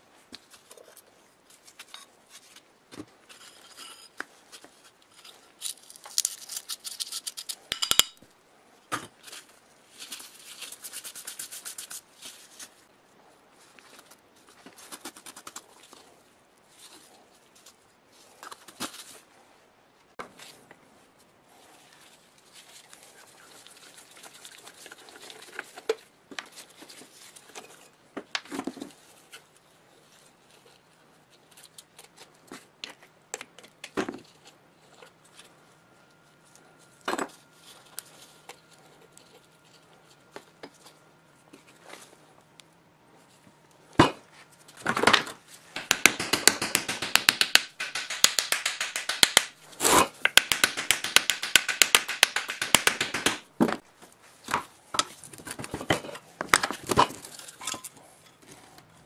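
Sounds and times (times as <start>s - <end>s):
metal parts clinking and scraping: 4.8s - 8.2s
rapid metal tapping: 45.8s - 49.6s, 50.3s - 53.4s.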